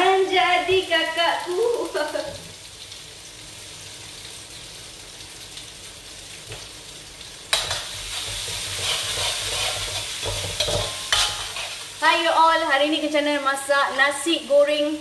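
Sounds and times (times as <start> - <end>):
paste sizzling in a wok: 0.0 - 15.0
metal spoon stirring wok: 7.5 - 12.0.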